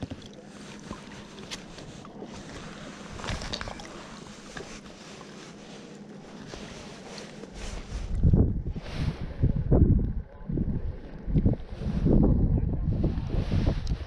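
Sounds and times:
water sloshing and dripping: 0.0s - 7.5s
water splash: 3.1s - 4.2s.

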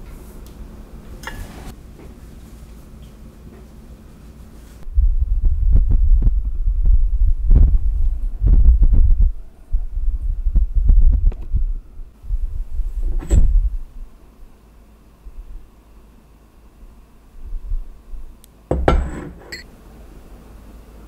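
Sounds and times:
microphone handling thumps: 4.8s - 13.8s.

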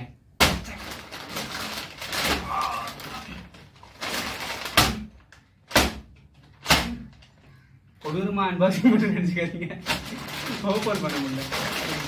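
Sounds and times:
paper wrapping crinkling: 0.6s - 5.5s, 9.8s - 12.0s
paper crackling pulls: 0.7s - 5.4s, 9.8s - 12.0s.

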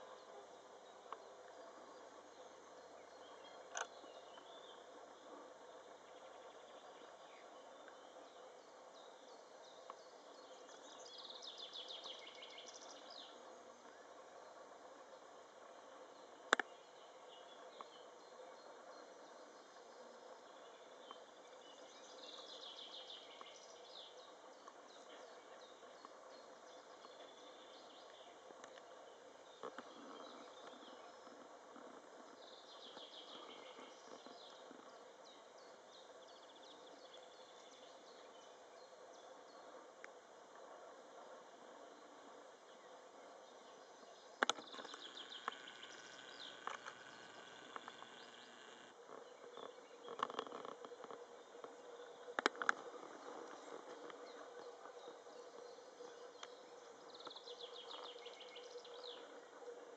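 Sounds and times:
small bird chirping: 44.2s - 51.2s.

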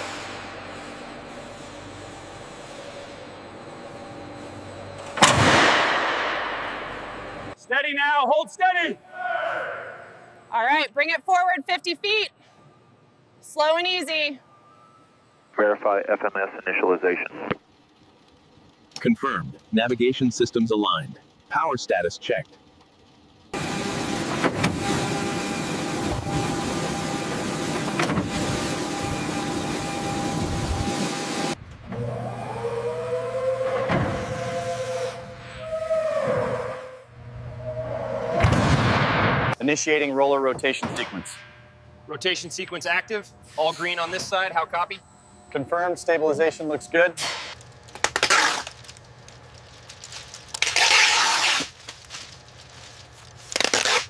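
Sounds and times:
faint hum: 0.0s - 54.0s
foil sheeting crinkling and tearing: 47.6s - 54.0s.

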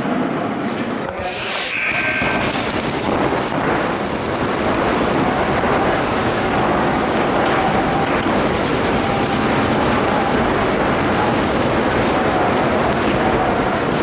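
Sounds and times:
short buzzer tone: 1.3s - 2.7s
paintball markers firing rapidly: 2.2s - 14.0s.

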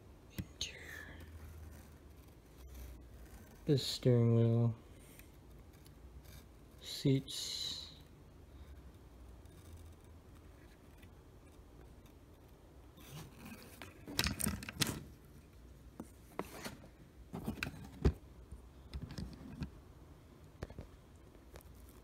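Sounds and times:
handling clicks and scrapes: 13.0s - 18.2s, 18.9s - 19.7s.

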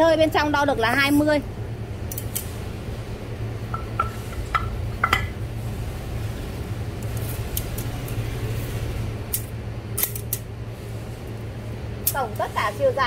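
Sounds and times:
steady low hum: 0.0s - 13.0s
metal cylinder knocking: 3.7s - 5.4s.

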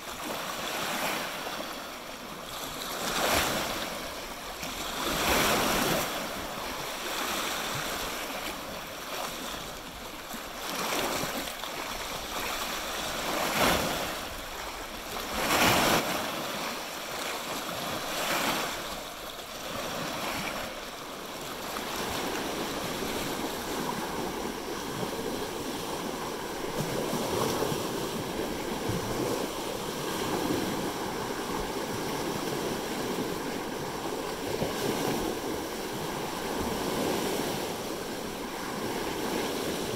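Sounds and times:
waves lapping on rocks: 0.0s - 39.9s.

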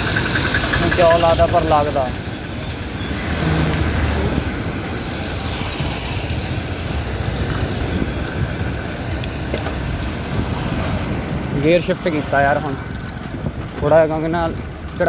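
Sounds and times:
motorbike and car traffic: 0.0s - 15.0s
wind rushing over microphone: 3.0s - 14.9s.

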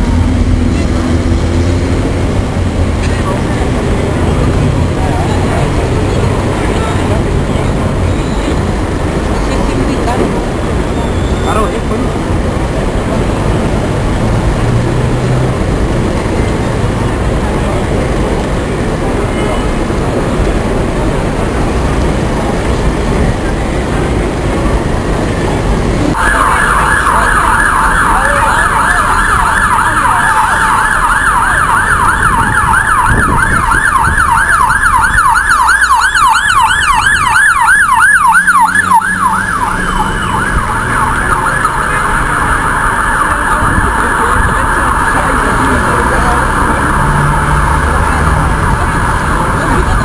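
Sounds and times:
crowd murmur: 0.0s - 33.8s, 35.8s - 50.0s
city traffic hum: 0.0s - 50.0s
ambulance siren yelping: 26.1s - 50.0s.

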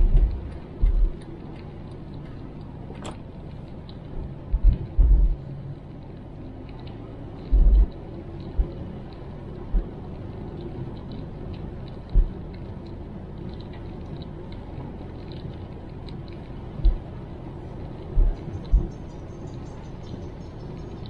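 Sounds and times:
low thumps: 0.0s - 1.2s, 4.5s - 5.4s, 7.5s - 8.0s, 18.1s - 18.9s
car cabin road rumble: 0.0s - 21.0s
raindrops ticking: 0.0s - 21.0s
tyres on wet road: 0.0s - 21.0s.

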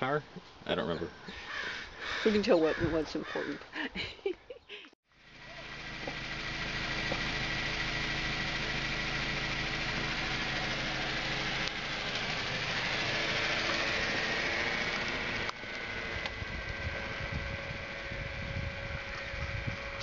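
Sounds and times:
car engine running: 5.1s - 20.0s.

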